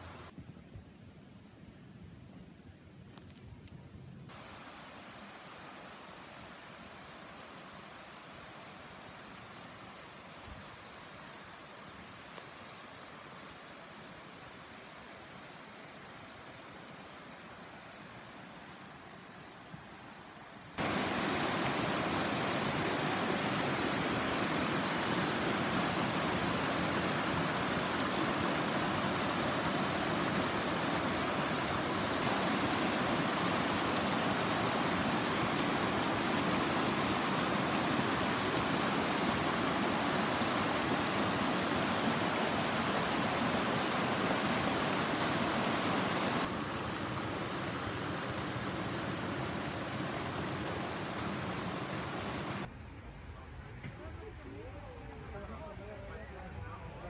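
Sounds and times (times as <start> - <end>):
creek rushing over rocks: 20.8 - 52.7.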